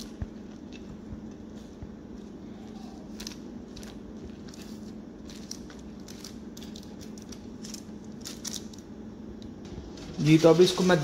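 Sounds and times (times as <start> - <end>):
steady low hum: 0.0 - 11.0
skewers clicking on foil: 3.1 - 8.9, 9.8 - 11.0.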